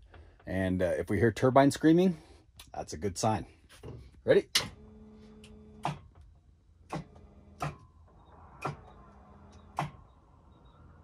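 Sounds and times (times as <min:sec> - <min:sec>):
turbine starter whine: 0:04.6 - 0:11.0.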